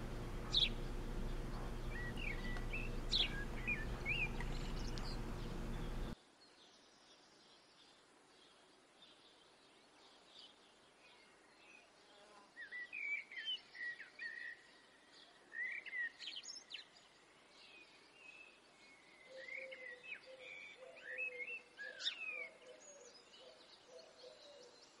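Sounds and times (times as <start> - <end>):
birds chirping and whistling: 0.0 - 6.2
low hooting bird call: 0.0 - 6.2
faint steady hiss: 0.0 - 15.7.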